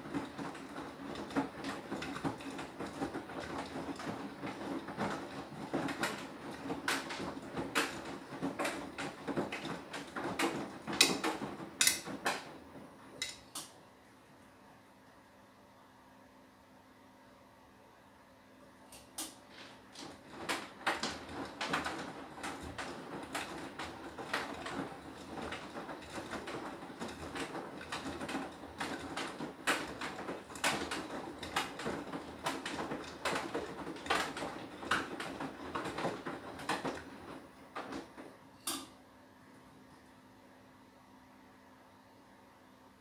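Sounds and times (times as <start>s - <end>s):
washing machine drum tumbling: 0.0s - 13.6s, 19.4s - 38.9s.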